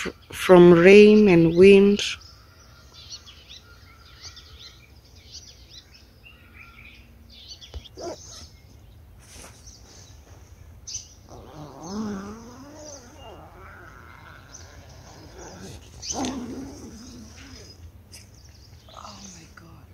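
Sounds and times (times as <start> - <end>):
birds chirping: 0.0 - 19.9
low background hum: 0.0 - 19.9
dog whining: 7.8 - 8.6, 11.3 - 17.8.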